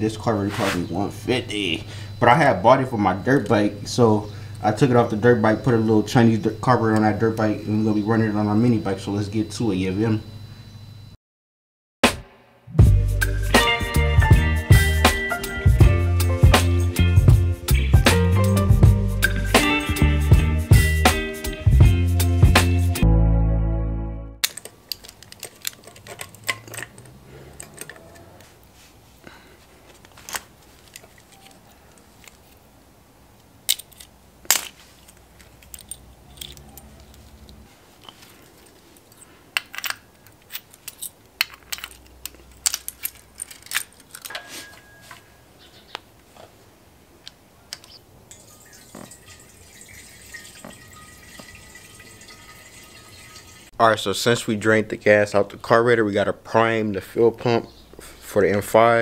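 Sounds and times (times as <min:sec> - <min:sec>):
faint steady hiss: 0:00.0 - 0:11.2.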